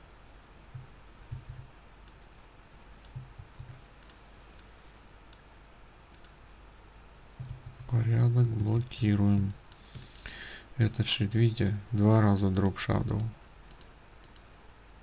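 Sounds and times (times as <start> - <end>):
computer mouse clicks: 0.7 - 2.3, 3.0 - 5.5, 6.1 - 6.4, 13.1 - 14.5.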